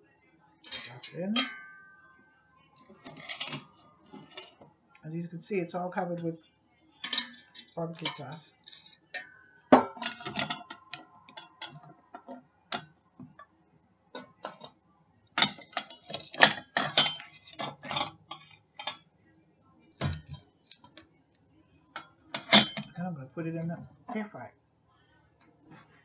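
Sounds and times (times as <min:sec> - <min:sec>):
faint ringing: 0:00.8 - 0:04.6
utensils clinking on metal basket: 0:03.0 - 0:04.6, 0:10.0 - 0:11.9, 0:15.4 - 0:19.0, 0:22.4 - 0:22.9.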